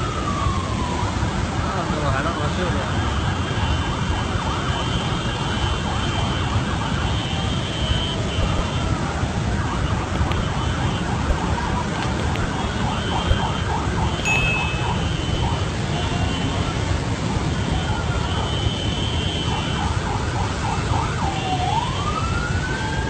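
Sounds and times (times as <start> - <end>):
high steady tone: 14.2 - 15.5.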